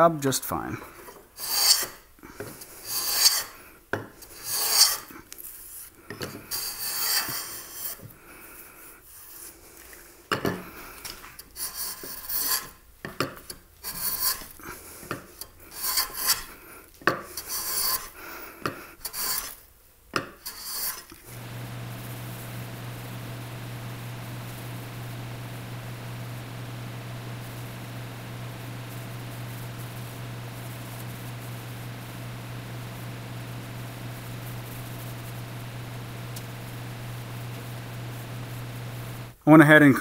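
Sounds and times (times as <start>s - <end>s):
hand plane shaving wood: 1.4s - 2.0s.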